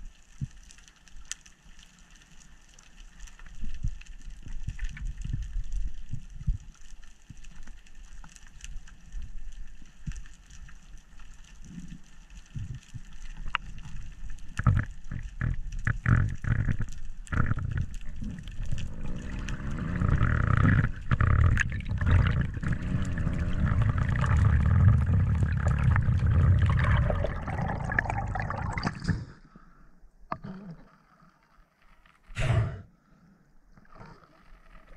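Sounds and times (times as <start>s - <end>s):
water rushing underwater: 17.2s - 29.5s.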